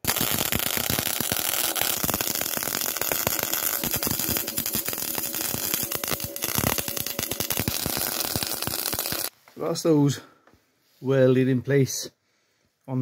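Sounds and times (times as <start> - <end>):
welder arc crackling: 0.0 - 9.3.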